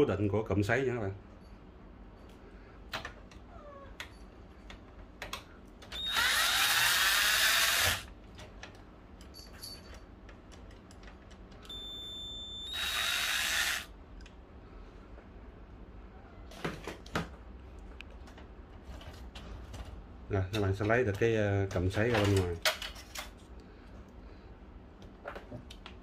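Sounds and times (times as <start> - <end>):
electric screwdriver running: 6.0 - 8.1, 12.7 - 13.9.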